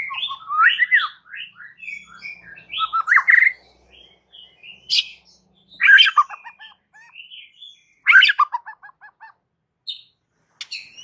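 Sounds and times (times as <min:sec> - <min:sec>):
bird singing whistled phrases: 0:00.0 - 0:03.6, 0:04.6 - 0:08.5.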